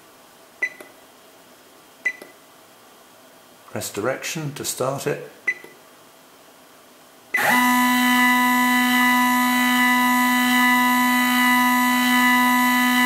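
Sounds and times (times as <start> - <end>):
stepper motor whining: 7.4 - 13.0.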